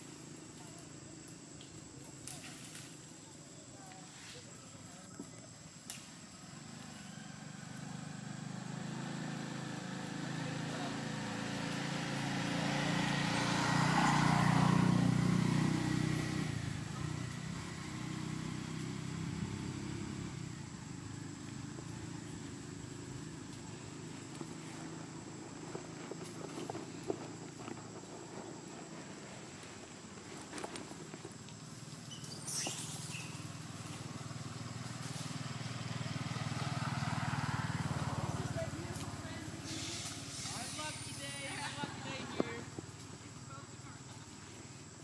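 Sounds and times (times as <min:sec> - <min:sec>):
vehicle engine passing by: 0:06.4 - 0:27.4, 0:31.3 - 0:43.2.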